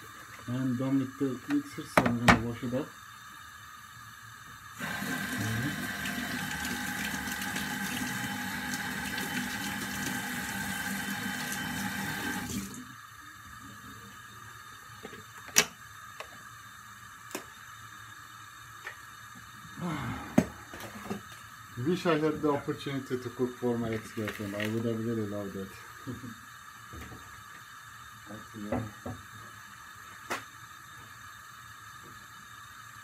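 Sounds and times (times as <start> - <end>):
tap water running into sink: 4.8 - 12.9.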